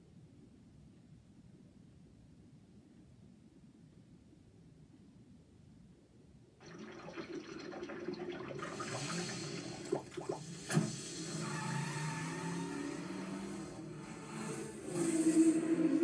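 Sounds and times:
cartoon soda pouring and fizzing: 6.6 - 13.7.

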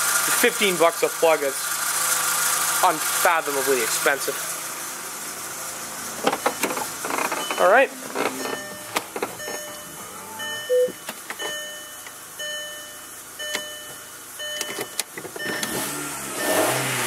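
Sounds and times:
car dashboard warning chime: 7.4 - 16.9.

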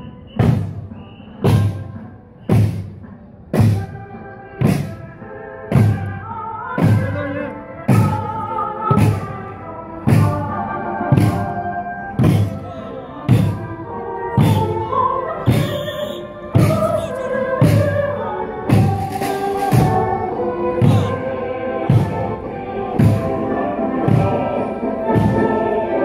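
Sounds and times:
large marching drum beating: 0.3 - 6.2, 6.8 - 10.5, 11.1 - 11.6, 12.2 - 13.7, 14.4 - 14.8, 15.4 - 18.1, 18.7 - 23.4, 24.0 - 25.6
people singing: 5.6 - 26.0.

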